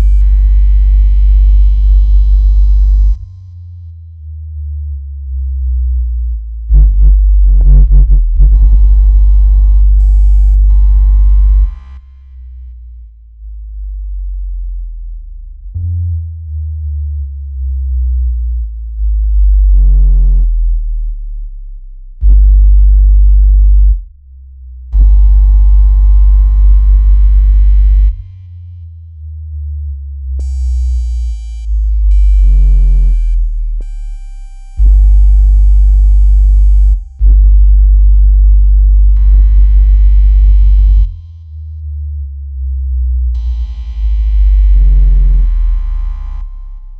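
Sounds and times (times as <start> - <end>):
buzzy higher tones: 0.0 - 3.2, 6.7 - 12.1
deep bass tones: 0.0 - 46.9.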